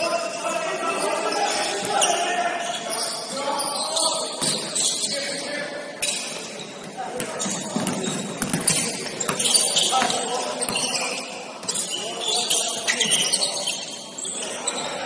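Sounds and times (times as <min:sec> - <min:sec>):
echoing voices in a hall: 0:00.0 - 0:15.0
basketball bouncing on court: 0:07.2 - 0:10.9.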